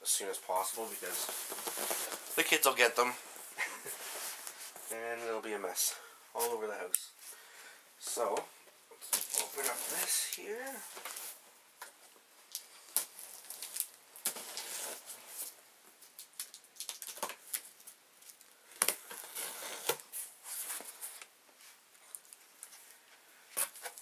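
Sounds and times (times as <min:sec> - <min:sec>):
cardboard flaps scraping: 0:00.8 - 0:02.6.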